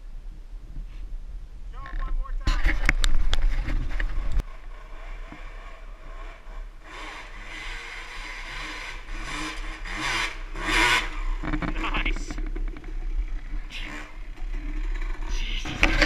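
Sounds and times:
dirt bike engines revving: 0:03.6 - 0:16.0
loud low rumble with knocks: 0:11.2 - 0:16.0.

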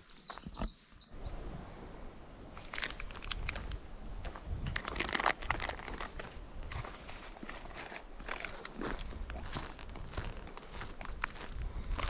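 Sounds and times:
bird chirp: 0:00.0 - 0:01.4
footsteps crunching on trail: 0:02.6 - 0:12.0.

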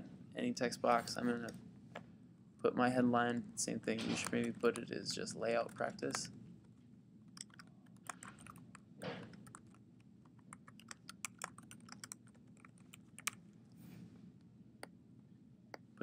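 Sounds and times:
typing on a keyboard: 0:07.3 - 0:13.4.

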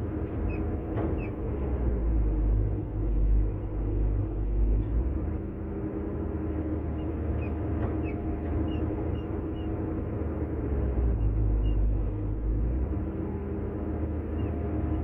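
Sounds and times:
excavator diesel engine rumbling: 0:00.0 - 0:15.0.

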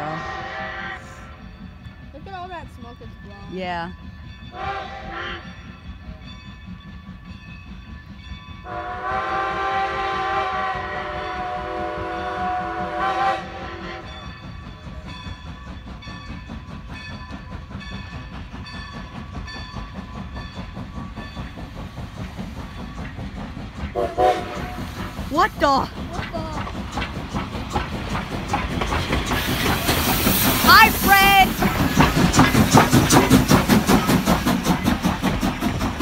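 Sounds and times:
steam whistle blast: 0:00.0 - 0:01.2, 0:08.7 - 0:14.1, 0:24.0 - 0:24.8
steam locomotive rumble: 0:00.0 - 0:36.0
train wheels clattering: 0:01.0 - 0:36.0.

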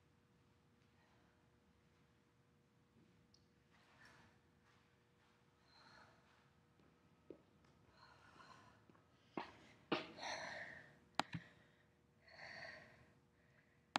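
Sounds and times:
faint breathing: 0:07.9 - 0:13.9.

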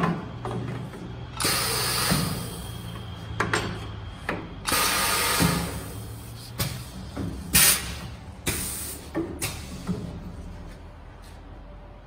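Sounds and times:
compressed air hiss: 0:05.2 - 0:09.8.

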